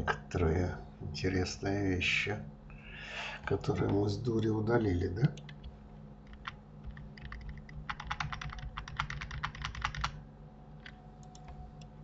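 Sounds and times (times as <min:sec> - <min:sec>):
computer keyboard typing: 0:06.3 - 0:10.2, 0:10.8 - 0:11.6.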